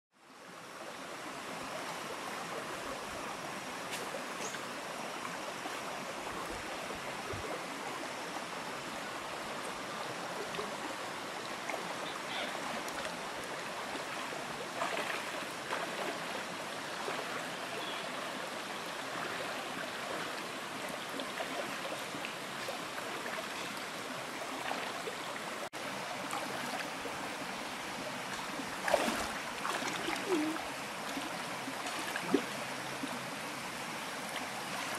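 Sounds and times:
rocky creek flowing: 0:00.2 - 0:34.9
splashes from wading: 0:11.6 - 0:18.4, 0:19.0 - 0:25.2, 0:28.5 - 0:32.5.

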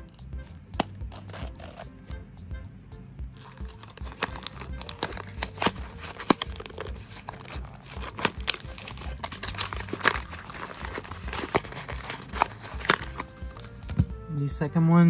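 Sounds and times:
cardboard box opening crinkling: 0:01.1 - 0:01.9, 0:03.4 - 0:14.1
sharp clicks and crackles: 0:03.4 - 0:14.0.

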